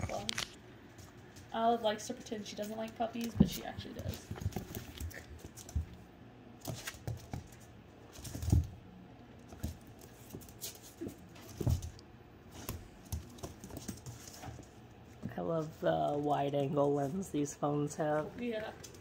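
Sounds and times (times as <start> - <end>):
puppy claws clicking on wood floor: 2.1 - 6.0, 6.6 - 8.7, 9.5 - 15.3.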